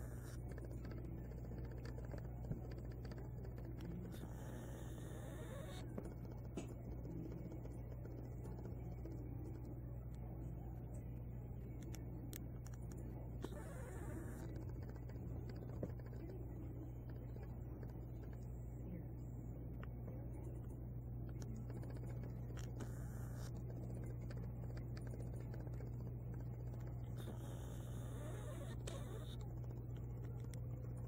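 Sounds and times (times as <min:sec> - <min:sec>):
soft scratchy clicks: 0:00.0 - 0:18.6, 0:19.8 - 0:31.0
steady low hum: 0:00.0 - 0:31.0.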